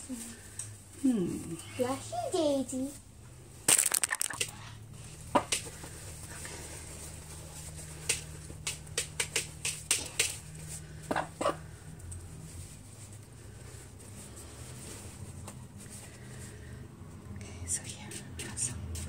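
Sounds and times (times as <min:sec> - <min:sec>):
hands clicking and tapping: 0:08.0 - 0:10.4.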